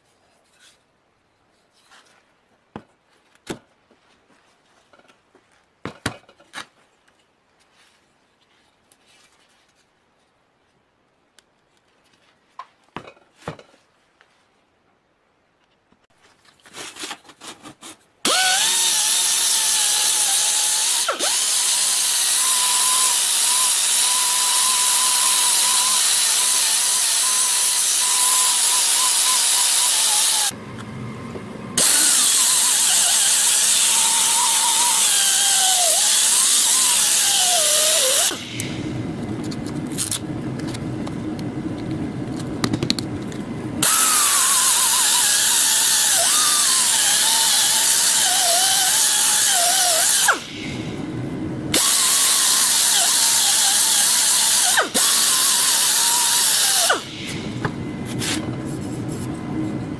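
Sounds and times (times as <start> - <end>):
pneumatic sander whining: 18.2 - 31.1, 31.8 - 39.0, 43.8 - 50.9, 51.7 - 58.6
low hum: 30.6 - 32.6, 38.4 - 43.9, 50.6 - 51.8.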